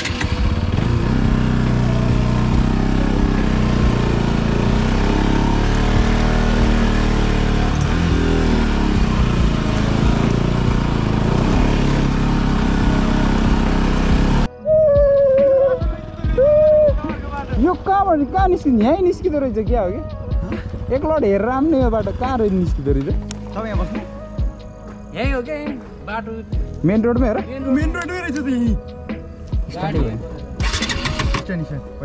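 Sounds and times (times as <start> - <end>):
motorcycle engine running: 0.0 - 14.5, 15.1 - 24.5, 30.6 - 31.6.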